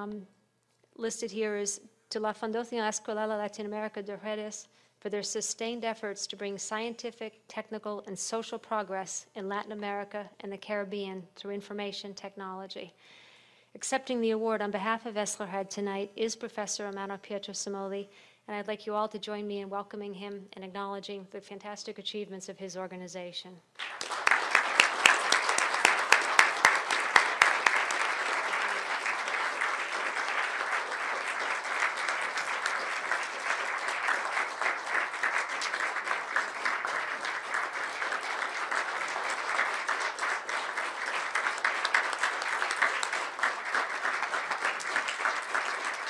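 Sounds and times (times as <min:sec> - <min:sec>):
audience applauding: 0:23.8 - 0:46.0.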